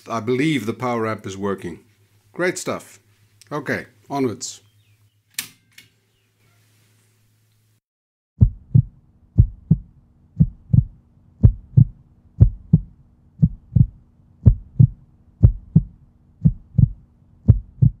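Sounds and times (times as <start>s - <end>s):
faint low hum: 8.4s - 18.0s
heartbeat thumps: 8.4s - 18.0s.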